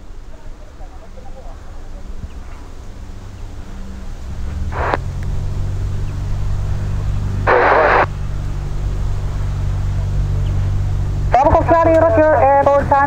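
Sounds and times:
light aircraft engine droning: 0:00.0 - 0:13.0
radio static burst: 0:04.7 - 0:05.1, 0:07.3 - 0:08.2.

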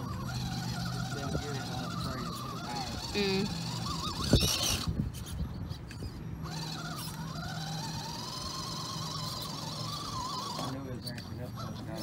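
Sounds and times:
small electric motor whining: 0:00.0 - 0:12.0.

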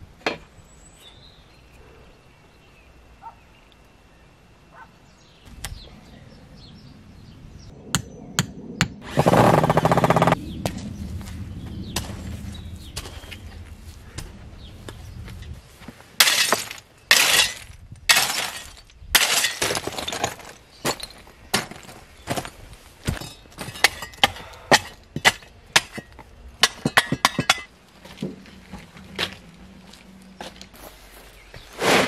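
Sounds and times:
rubble clinking underfoot: 0:12.9 - 0:32.0.

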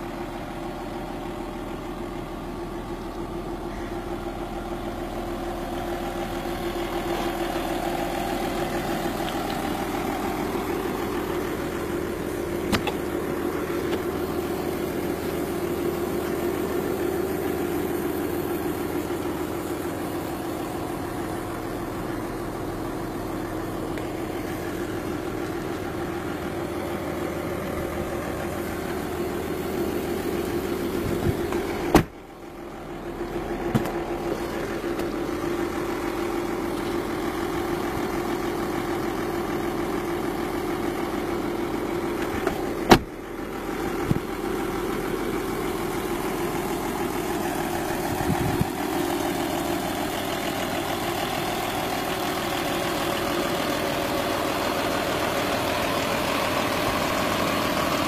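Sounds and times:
car engine idling: 0:00.0 - 0:58.0
sharp thumps: 0:12.7 - 0:13.1, 0:31.1 - 0:32.2.

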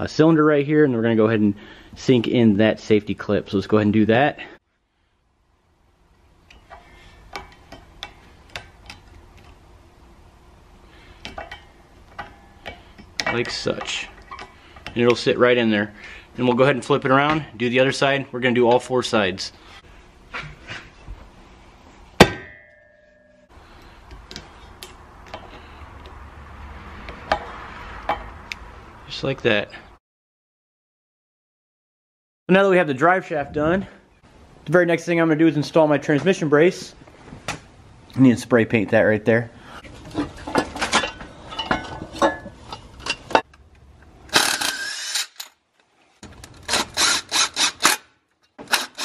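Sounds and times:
metal bolts clinking and knocking: 0:11.2 - 0:15.0, 0:40.1 - 0:43.7
sharp metal clank: 0:22.2 - 0:23.5
impact driver rattling bursts: 0:46.6 - 0:48.0, 0:48.6 - 0:49.0.

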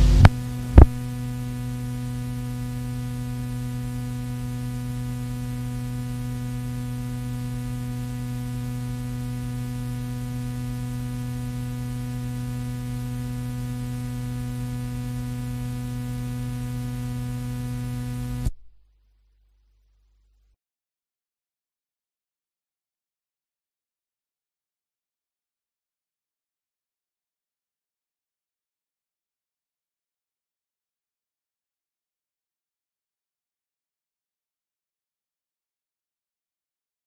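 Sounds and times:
recording hiss: 0:00.0 - 0:03.4
electrical mains hum: 0:00.0 - 0:20.6.

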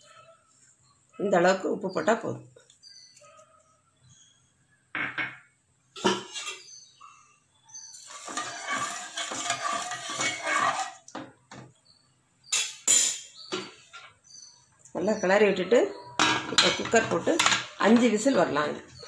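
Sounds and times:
spoon stirring and scraping pot: 0:06.0 - 0:06.9, 0:07.7 - 0:11.7, 0:16.1 - 0:19.0.

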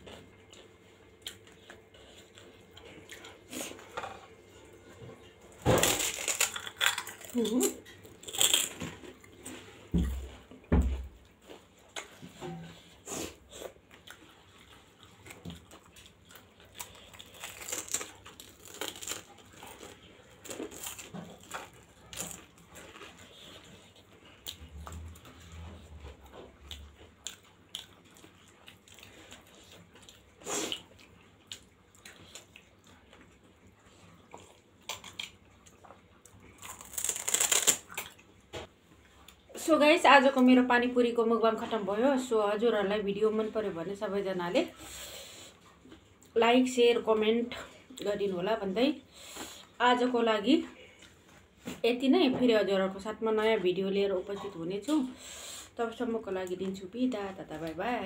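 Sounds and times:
close chewing and mouth sounds: 0:00.0 - 0:39.8, 0:44.6 - 0:49.8, 0:50.7 - 0:51.8.

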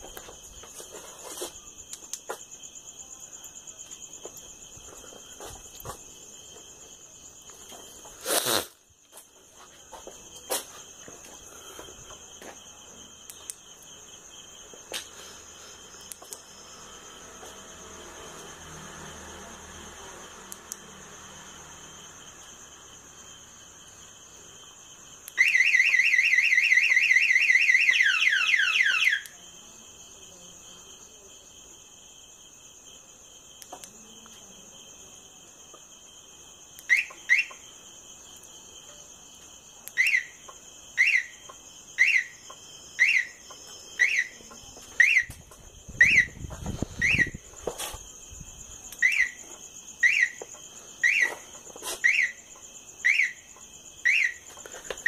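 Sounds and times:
warbling alarm siren: 0:25.4 - 0:29.3, 0:42.0 - 0:42.3, 0:43.0 - 0:43.4, 0:44.0 - 0:44.4, 0:45.0 - 0:45.3, 0:46.0 - 0:46.4, 0:47.0 - 0:47.4, 0:49.0 - 0:49.4, 0:50.0 - 0:50.4, 0:51.0 - 0:51.4, 0:52.0 - 0:52.4, 0:53.0 - 0:53.4, 0:54.0 - 0:54.4.

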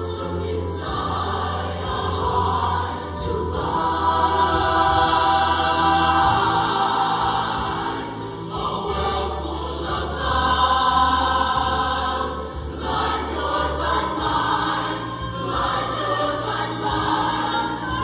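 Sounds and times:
choir singing held chords: 0:00.0 - 0:18.0.

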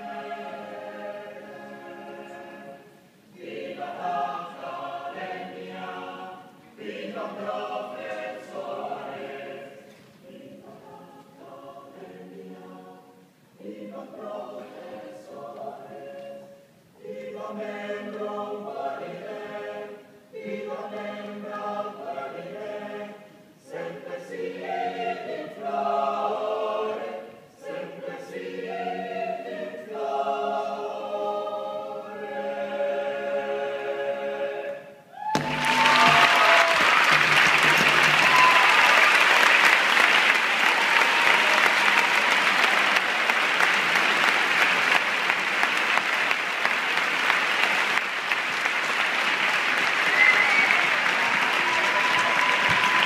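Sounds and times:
choir singing: 0:00.0 - 0:48.0
loud applause: 0:35.2 - 0:53.0.

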